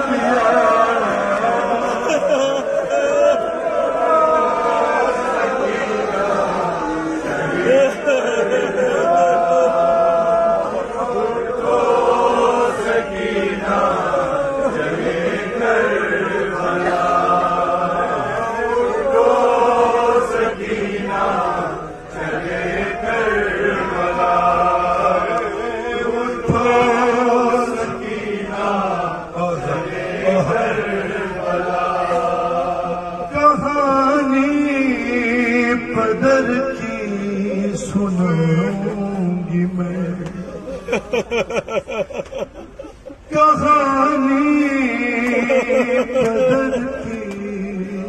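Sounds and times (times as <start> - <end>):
man chanting a lament: 22.5 - 40.9, 43.2 - 48.0.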